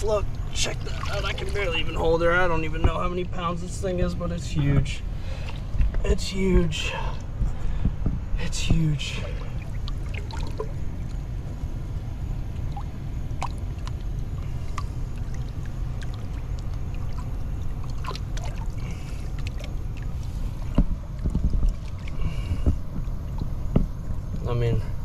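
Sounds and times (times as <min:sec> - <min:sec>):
water splashes and drips: 0:00.0 - 0:02.0, 0:08.7 - 0:11.8, 0:12.4 - 0:24.4
water lapping around rocks: 0:00.0 - 0:02.4, 0:09.1 - 0:11.4, 0:12.4 - 0:24.3
low rumble: 0:00.0 - 0:25.0.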